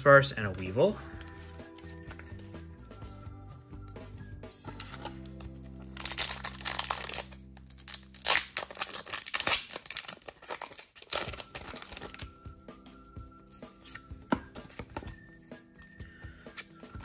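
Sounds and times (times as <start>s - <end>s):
cards rustling: 4.7s - 12.3s, 13.8s - 17.0s
foil pack crinkling and ripping: 4.8s - 12.3s.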